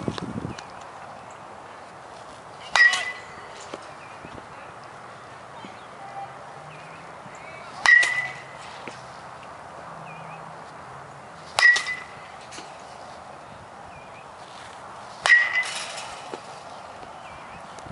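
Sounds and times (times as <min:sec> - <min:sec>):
metal bat striking baseball: 0:02.7 - 0:03.9, 0:07.8 - 0:09.0, 0:11.5 - 0:12.8, 0:15.2 - 0:16.6.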